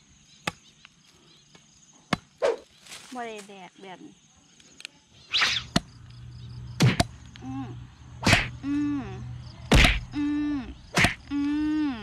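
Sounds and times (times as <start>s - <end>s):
held humming tone: 5.9s - 12.0s
knife chopping bamboo: 9.7s - 10.1s.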